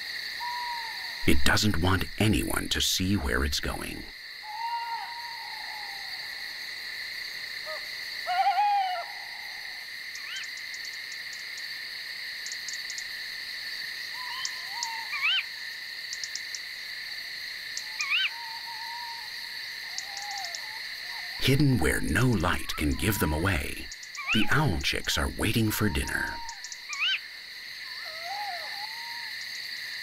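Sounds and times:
high insect chorus: 0:00.0 - 0:30.0
owl calls: 0:00.4 - 0:01.4, 0:03.8 - 0:06.4, 0:07.6 - 0:10.5, 0:14.1 - 0:15.6, 0:17.8 - 0:27.2, 0:27.9 - 0:29.4.

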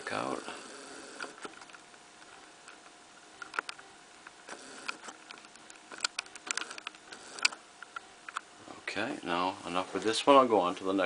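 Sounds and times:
low hiss: 0:00.0 - 0:11.0
computer mouse clicks: 0:01.2 - 0:08.4.

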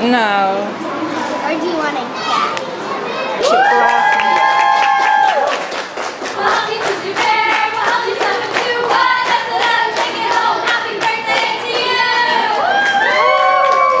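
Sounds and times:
rhythmic clapping: 0:03.9 - 0:14.0
group of voices singing: 0:06.2 - 0:12.8.

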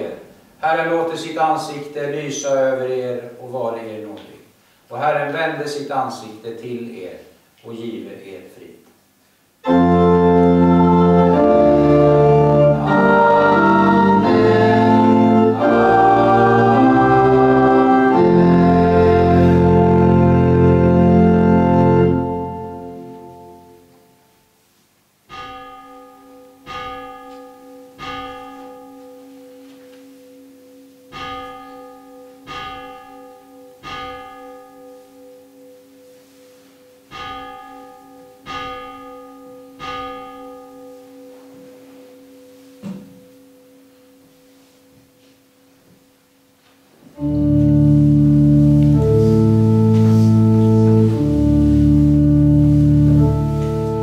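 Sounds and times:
pipe organ playing: 0:09.6 - 0:24.1, 0:47.2 - 0:54.0
church bell striking: 0:10.6 - 0:24.2, 0:25.3 - 0:45.8, 0:47.2 - 0:54.0.

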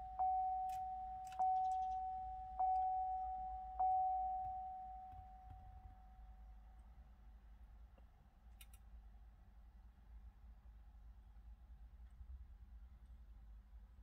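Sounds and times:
car warning chime dings: 0:00.0 - 0:06.4.

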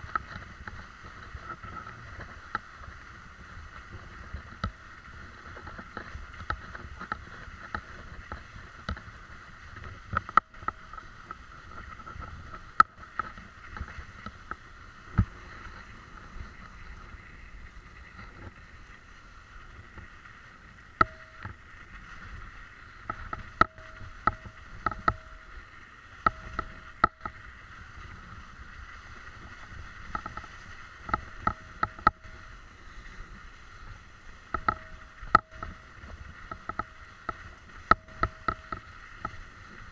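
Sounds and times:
bicycle tyres rolling on snow: 0:00.0 - 0:39.9
bike knocks and rattles: 0:20.9 - 0:21.7, 0:23.0 - 0:25.5, 0:34.5 - 0:39.9.

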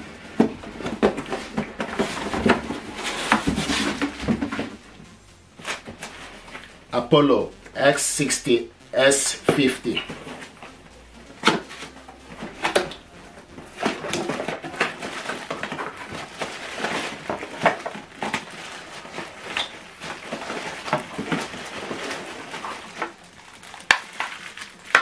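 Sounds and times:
cardboard flaps scraping: 0:00.0 - 0:04.8, 0:11.4 - 0:23.2
plastic wrap crinkling: 0:00.0 - 0:04.9, 0:09.4 - 0:25.0.

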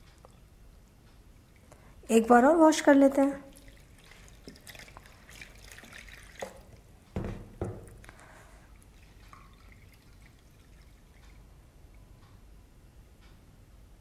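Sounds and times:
faint water drips: 0:00.0 - 0:07.0, 0:07.8 - 0:12.4.

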